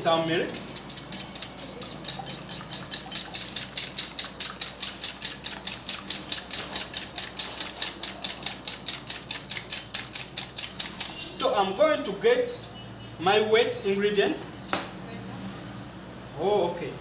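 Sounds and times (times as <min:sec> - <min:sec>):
whisk beating batter in bowl: 0:00.0 - 0:12.2.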